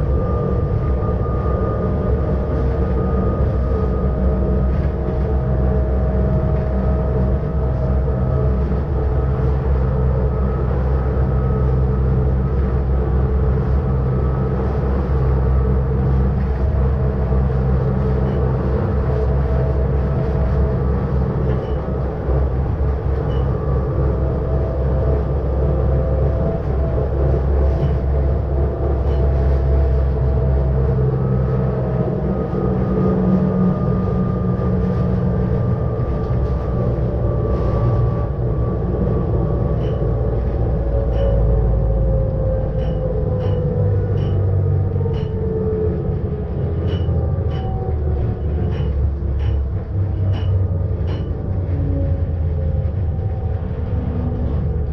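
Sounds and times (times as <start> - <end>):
motor and gear whine: 0.0 - 4.6
electric train running: 0.0 - 54.9.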